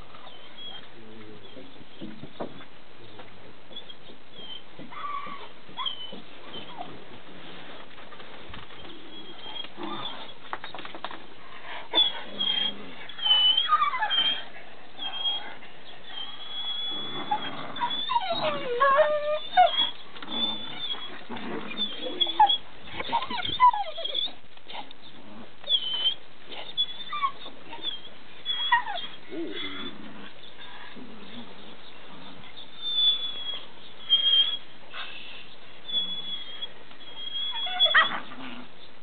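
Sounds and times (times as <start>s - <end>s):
dog whimpering: 3.7s - 7.0s, 8.8s - 10.4s, 12.0s - 24.4s, 25.6s - 30.0s, 32.5s - 34.7s, 35.8s - 38.6s
birds chirping: 26.7s - 39.0s.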